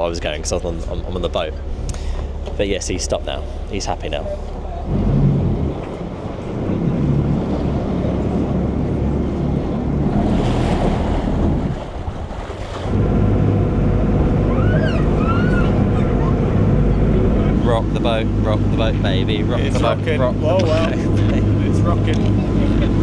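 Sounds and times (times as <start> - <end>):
ferry engine running: 0.0 - 23.0
water rushing along hull: 0.0 - 23.0
wind buffeting microphone: 4.9 - 23.0.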